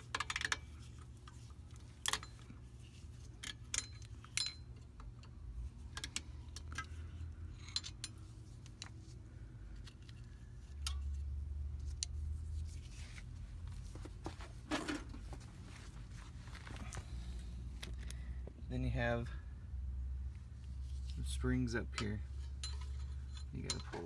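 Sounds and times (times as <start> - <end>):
wrench clinking on brake hardware: 3.4 - 5.3, 7.5 - 8.2, 21.8 - 24.0.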